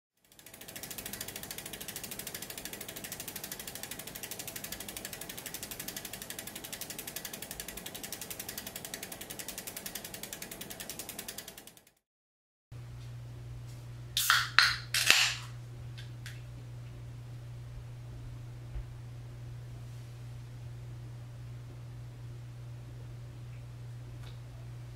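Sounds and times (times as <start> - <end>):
bicycle freewheel ratchet clicking: 0.2 - 12.0.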